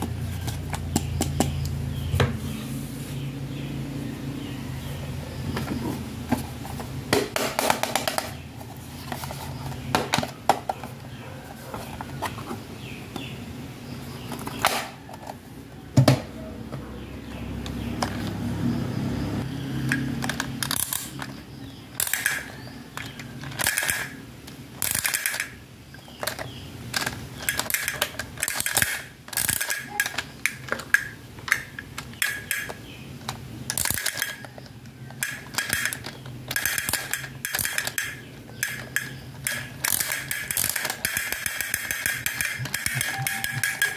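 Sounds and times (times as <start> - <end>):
plastic toy pieces clicking: 19.9 - 24.2, 24.8 - 43.9.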